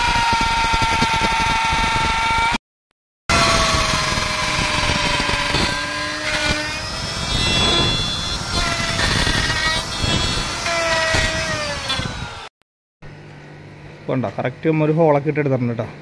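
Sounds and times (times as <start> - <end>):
wood router motor whine: 0.0 - 2.6, 3.3 - 12.5.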